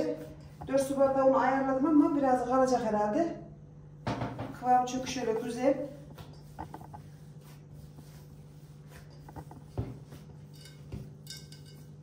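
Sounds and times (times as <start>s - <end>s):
low steady hum: 0.0s - 12.0s
hands kneading dough: 5.0s - 12.0s.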